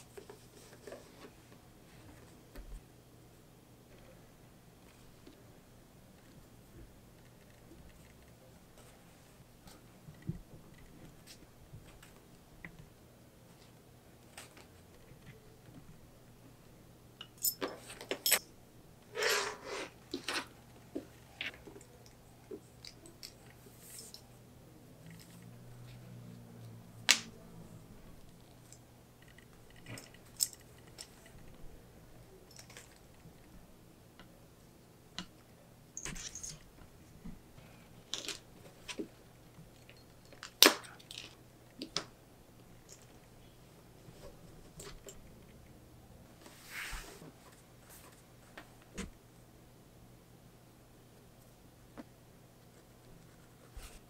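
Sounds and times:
short scrape: 19.1s - 20.0s.

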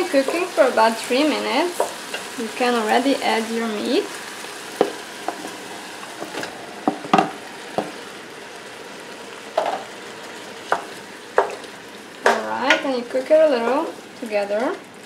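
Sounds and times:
onions sizzling in hot oil: 0.0s - 15.0s
wooden spoon knocking on pot: 0.2s - 0.5s, 6.8s - 8.0s, 10.7s - 11.6s.

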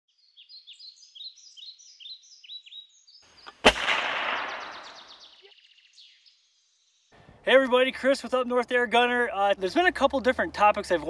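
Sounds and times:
bird chirping: 0.1s - 7.5s
sharp bang: 3.6s - 5.2s.

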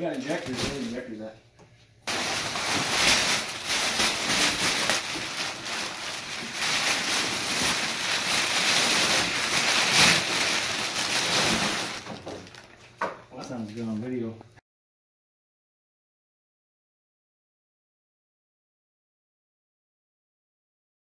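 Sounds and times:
packing paper rustling and crackling: 0.0s - 1.2s, 2.1s - 13.9s.

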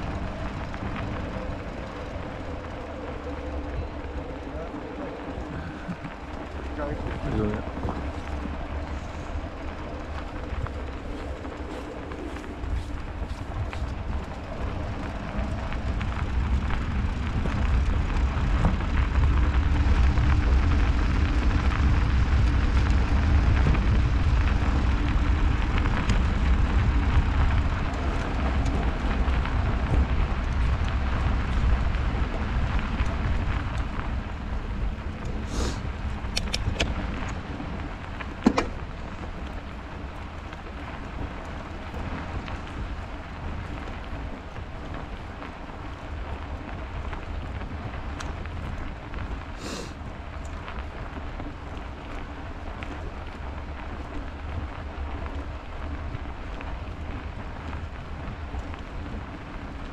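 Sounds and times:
bicycle tyre noise on snow: 0.0s - 59.9s
wind on microphone: 0.0s - 59.9s
sharp clicks: 36.3s - 36.9s.

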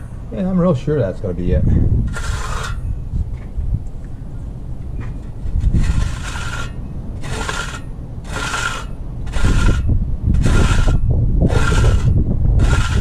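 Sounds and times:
trowel scraping wet concrete: 2.1s - 2.9s, 5.2s - 13.0s.

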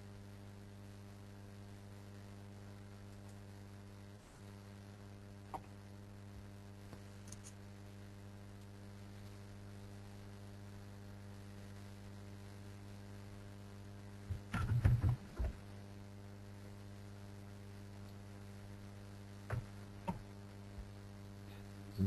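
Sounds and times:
electrical mains hum: 0.0s - 22.0s
muffled knocks: 14.3s - 15.6s.

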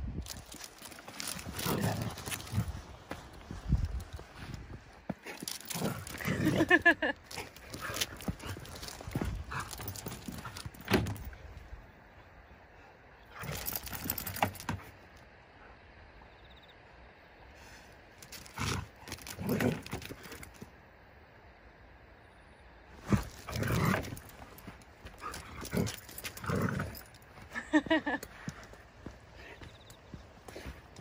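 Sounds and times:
paws scuffling on asphalt: 0.2s - 11.7s, 18.2s - 20.7s, 22.9s - 31.0s
dogs play growling: 0.3s - 3.3s, 4.0s - 11.3s, 13.2s - 14.8s, 18.2s - 20.6s, 23.0s - 28.0s.

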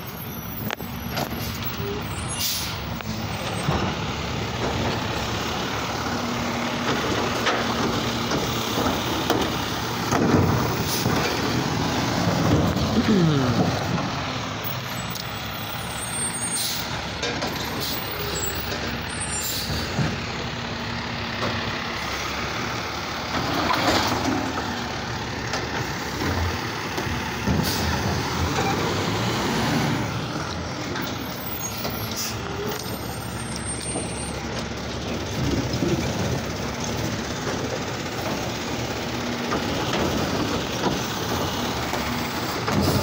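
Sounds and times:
garbage truck running: 0.0s - 43.0s
air brake hiss: 2.3s - 2.8s.

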